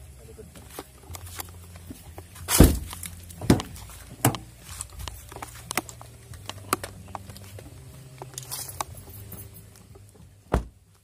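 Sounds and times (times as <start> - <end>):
loud thump: 2.5 - 3.7, 10.5 - 10.8.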